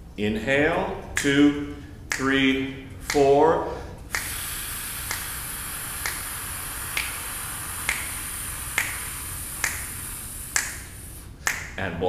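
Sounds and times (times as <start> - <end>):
finger snaps: 2.1 - 2.4, 3.0 - 3.3, 4.0 - 11.8
long hissed exhale: 3.7 - 11.4.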